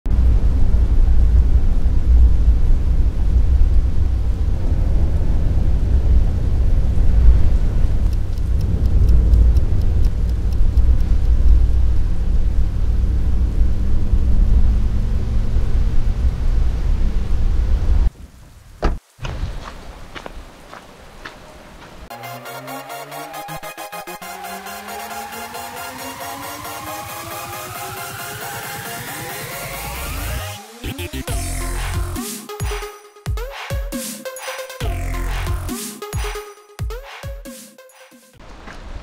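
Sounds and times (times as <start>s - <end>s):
road and engine rumble in car: 0.1s - 18.1s
light quick ticks: 8.0s - 11.4s.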